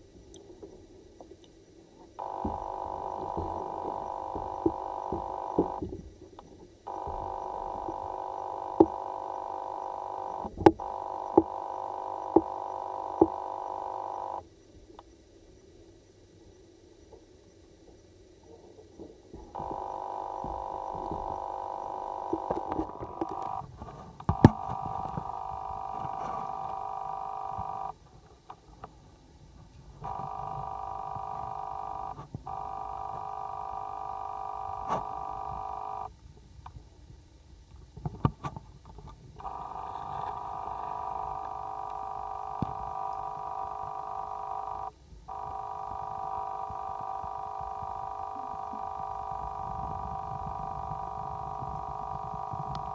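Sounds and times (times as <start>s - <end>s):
tap whining: 2.2s - 6.0s, 6.9s - 14.4s, 19.6s - 27.9s, 30.0s - 36.1s, 39.4s - 52.9s.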